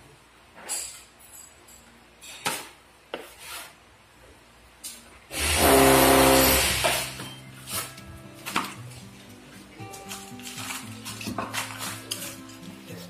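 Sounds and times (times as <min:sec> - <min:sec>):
trowel scraping and clinking: 0:10.0 - 0:13.0.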